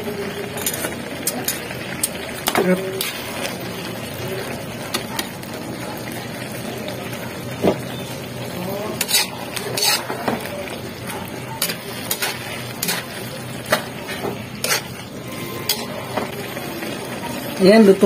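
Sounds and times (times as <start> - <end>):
metal ladle scraping a wok: 0.6 - 3.5, 8.9 - 10.5, 11.6 - 16.3.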